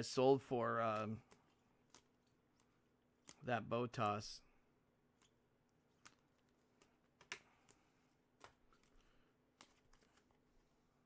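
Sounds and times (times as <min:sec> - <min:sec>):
cards clicking on a table: 0:00.8 - 0:04.2, 0:05.2 - 0:10.3.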